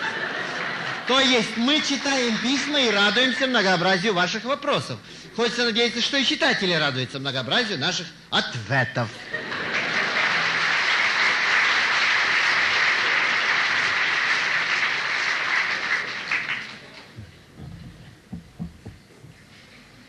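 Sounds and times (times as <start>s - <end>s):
audience applauding: 0.0s - 3.4s, 9.3s - 17.4s.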